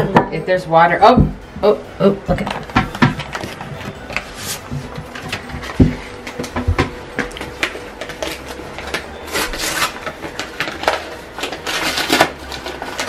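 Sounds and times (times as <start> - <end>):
paper rustling and crinkling: 2.4 - 13.0.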